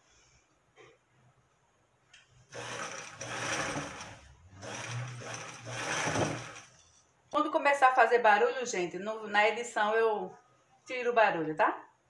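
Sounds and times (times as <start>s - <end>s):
sewing machine whirring: 2.5s - 6.9s.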